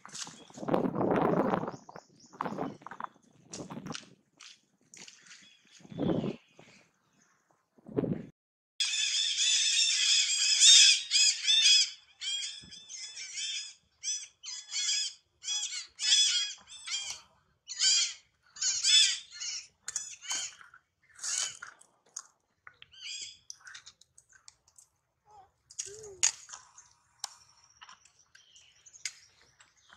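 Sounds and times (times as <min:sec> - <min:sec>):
high-pitched squeaky animal calls: 0:08.8 - 0:21.6, 0:22.9 - 0:23.8.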